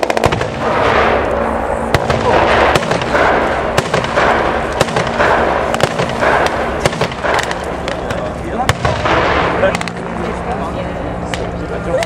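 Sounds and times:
gunfire cracks: 0.0 - 1.3, 1.9 - 10.0
booming explosions: 0.0 - 10.4
low engine drone: 0.0 - 12.0.

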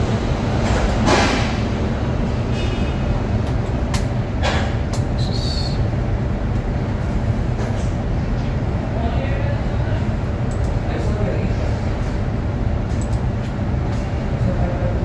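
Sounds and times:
low rumble of machinery: 0.0 - 15.0
sharp clicks: 10.5 - 10.8, 13.0 - 13.3.

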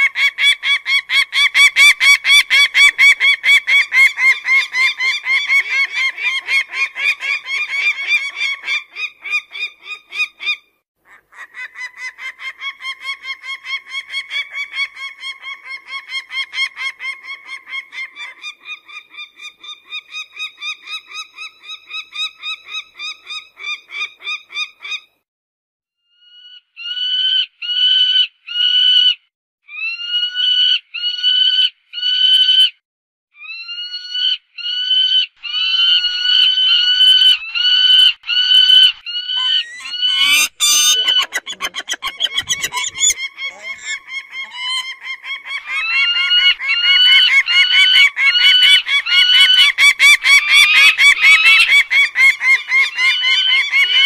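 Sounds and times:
falcon calling: 35.6 - 54.0.

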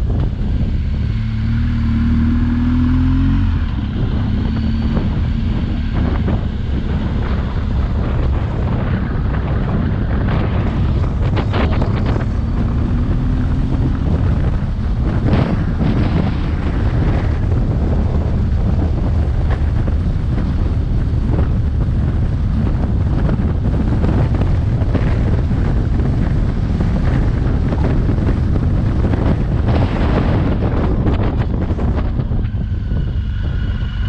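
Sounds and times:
motorcycle engine: 0.0 - 34.0
road noise: 0.0 - 34.0
wind buffeting microphone: 0.0 - 34.0.

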